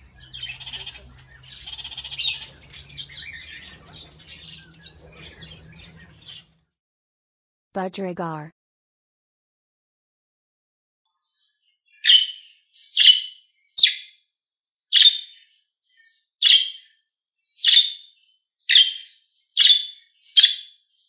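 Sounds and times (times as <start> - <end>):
budgerigar chirping: 0.0 - 6.5, 12.0 - 14.1, 15.0 - 15.4, 16.4 - 16.9, 18.7 - 20.8.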